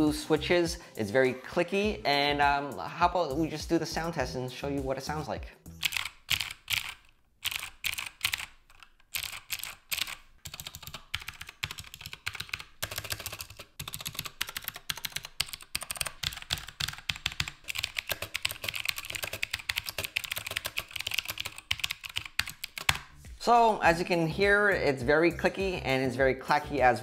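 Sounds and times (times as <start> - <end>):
clicky mechanical keyboard typing: 5.8 - 23.0.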